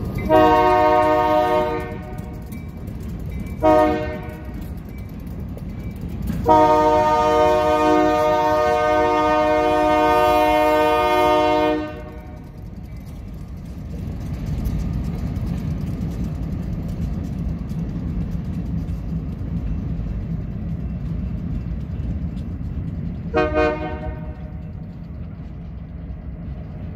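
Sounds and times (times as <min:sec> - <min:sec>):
diesel engines rumbling: 0:00.0 - 0:26.9
locomotive air horn blasts: 0:00.2 - 0:02.4, 0:03.6 - 0:04.6, 0:06.4 - 0:12.4, 0:23.3 - 0:24.6.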